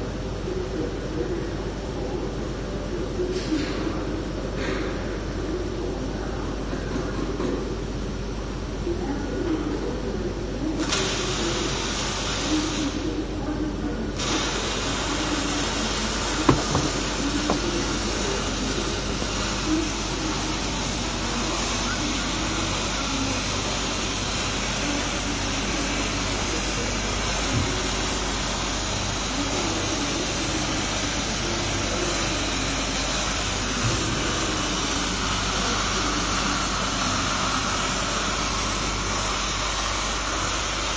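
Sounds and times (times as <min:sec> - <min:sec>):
welding arc hissing: 0:10.8 - 0:13.2, 0:14.2 - 0:40.9
faint knocks: 0:16.5 - 0:17.8.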